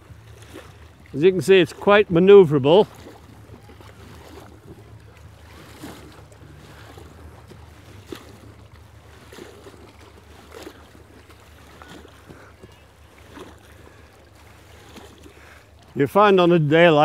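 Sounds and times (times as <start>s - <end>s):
paddle splashing water: 0.0s - 17.0s.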